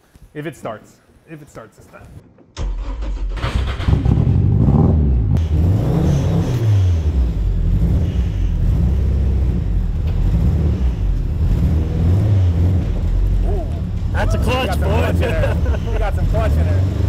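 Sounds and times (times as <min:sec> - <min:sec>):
car engine revving and idling: 0:03.4 - 0:17.0.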